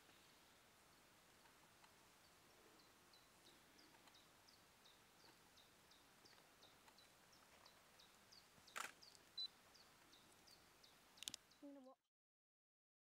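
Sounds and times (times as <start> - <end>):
sharp click: 11.2 - 11.4.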